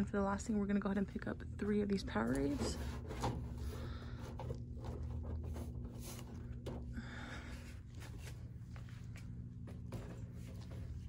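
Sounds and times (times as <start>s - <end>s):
shop hum with thin tone: 0.0s - 11.0s
plastic bottles knocking and rustling: 2.4s - 7.0s.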